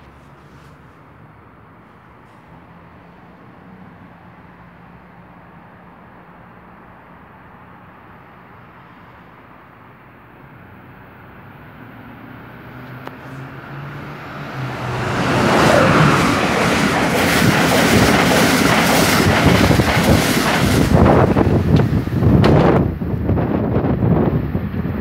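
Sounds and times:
passenger train passing: 0:01.7 - 0:25.0
train wheels clattering over rails: 0:14.5 - 0:23.0.

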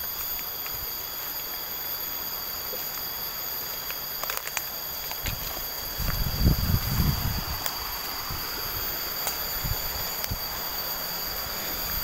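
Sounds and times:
undergrowth rustling: 0:00.0 - 0:12.0
footsteps on leaf litter: 0:02.6 - 0:12.0.

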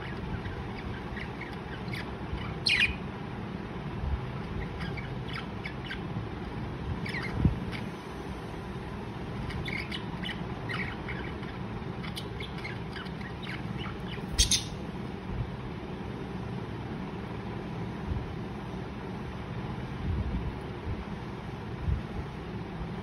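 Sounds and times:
budgerigars chirping: 0:00.0 - 0:03.0, 0:04.6 - 0:06.0, 0:09.5 - 0:14.8
low background rumble: 0:00.0 - 0:23.0
budgerigar squawk: 0:13.8 - 0:14.8.

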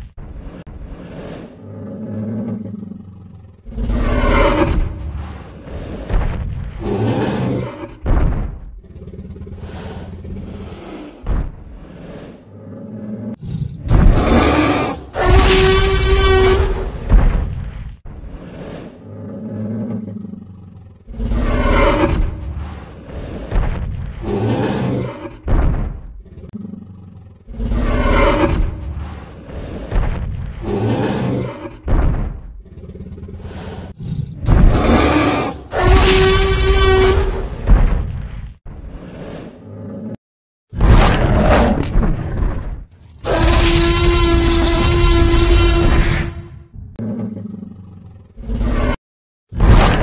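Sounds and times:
loud dinosaur roar: 0:00.4 - 0:06.1, 0:06.8 - 0:08.1, 0:08.8 - 0:17.1, 0:18.3 - 0:23.5, 0:24.2 - 0:25.5, 0:26.2 - 0:29.9, 0:30.6 - 0:31.9, 0:32.6 - 0:37.6, 0:43.2 - 0:49.0
sudden heavy thump: 0:08.0 - 0:08.7, 0:16.9 - 0:18.2, 0:25.4 - 0:26.2, 0:31.8 - 0:32.5, 0:37.2 - 0:38.6.

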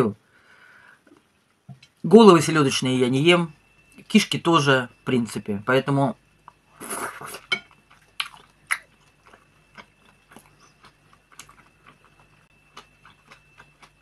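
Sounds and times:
mouth clicks and smacks: 0:06.4 - 0:14.0
person chewing food: 0:06.4 - 0:14.0.

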